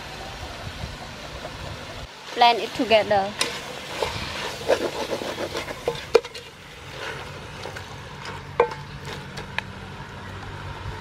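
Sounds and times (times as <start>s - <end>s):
wooden spoon stirring in a pot: 2.2s - 9.4s.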